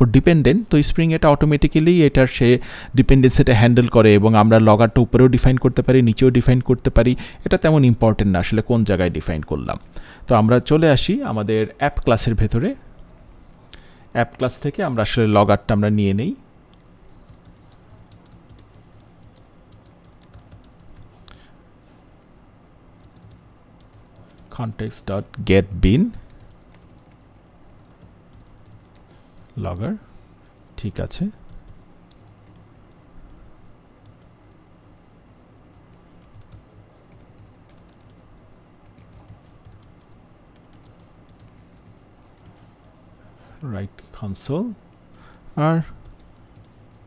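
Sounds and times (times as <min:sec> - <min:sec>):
typing on keyboard: 0:17.3 - 0:21.3, 0:23.0 - 0:24.5, 0:26.2 - 0:29.2, 0:31.5 - 0:33.4, 0:35.7 - 0:42.6, 0:46.0 - 0:47.0.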